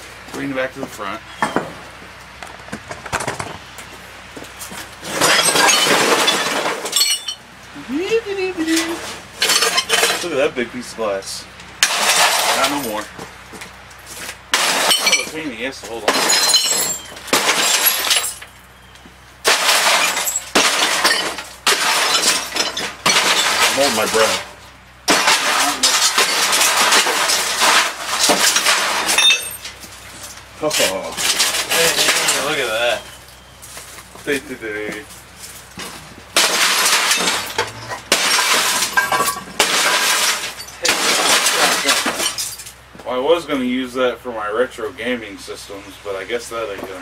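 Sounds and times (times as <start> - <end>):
glass shards falling: 5.0 - 7.5, 8.4 - 10.4, 11.8 - 13.1, 14.2 - 18.8, 19.4 - 33.5, 34.9 - 42.8
hammer smashing glass: 5.1 - 7.4, 9.4 - 10.3, 11.8 - 13.0, 14.5 - 18.5, 19.4 - 24.5, 25.1 - 29.8, 36.4 - 42.7
television screen glass crashing: 5.1 - 7.4, 8.6 - 10.4, 11.8 - 13.1, 14.5 - 18.6, 19.4 - 33.3, 36.3 - 42.8.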